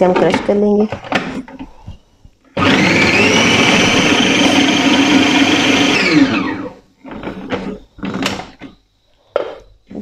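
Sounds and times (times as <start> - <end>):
food processor motor running: 2.6 - 7.3.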